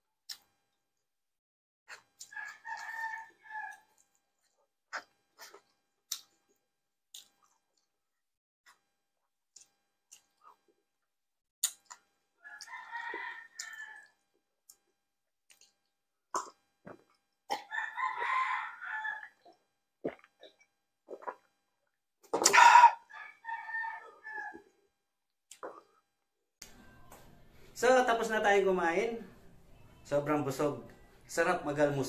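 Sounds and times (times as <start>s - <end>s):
rooster crowing: 2.3s - 3.9s, 12.4s - 14.2s, 17.6s - 19.4s, 22.5s - 24.7s.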